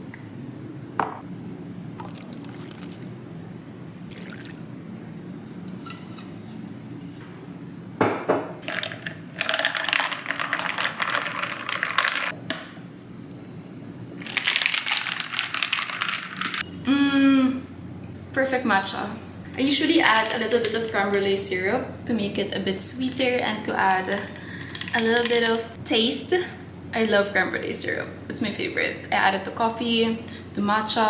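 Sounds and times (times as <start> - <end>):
knock on counter: 1.0 - 1.2, 8.0 - 8.5
liquid pouring over ice: 2.0 - 3.2, 4.1 - 4.6.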